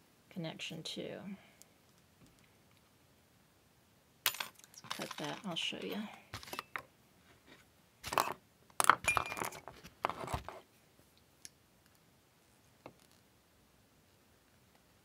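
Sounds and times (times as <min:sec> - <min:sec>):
small metal parts clinking: 0:04.3 - 0:06.9.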